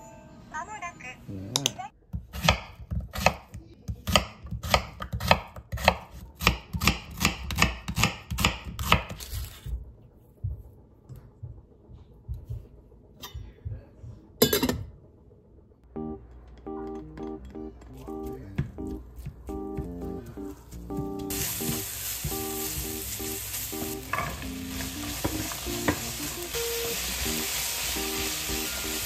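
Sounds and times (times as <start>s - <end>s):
knife chopping on wooden board: 2.1s - 9.1s.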